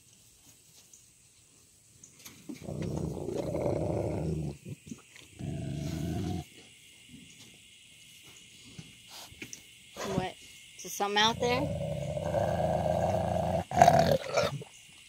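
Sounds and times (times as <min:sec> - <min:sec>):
dog growling: 0:02.5 - 0:06.4, 0:11.3 - 0:14.6.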